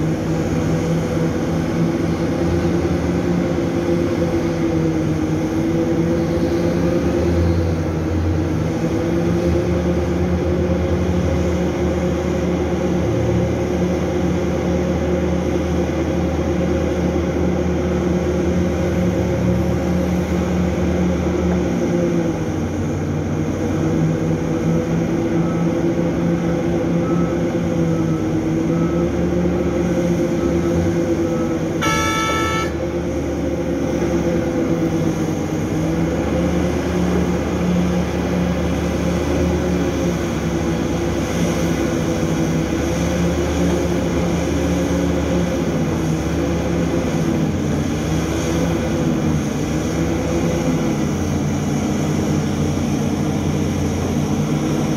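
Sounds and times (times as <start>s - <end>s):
big diesel engines running: 0.0s - 54.9s
faint backup alarm beeps: 31.3s - 32.8s
short horn toot: 31.8s - 32.9s.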